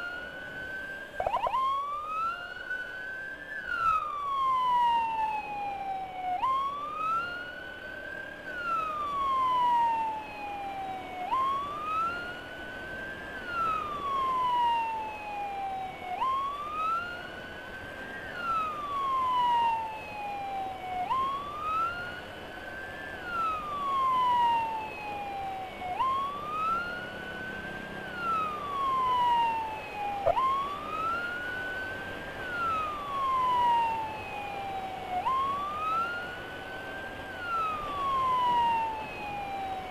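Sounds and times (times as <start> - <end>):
ambulance siren wailing: 0.0 - 39.9
road and wind noise: 0.0 - 39.9.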